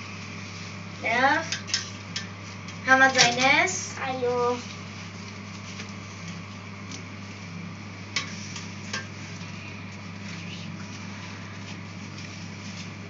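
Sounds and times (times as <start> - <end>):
low hum: 3.8 - 13.0.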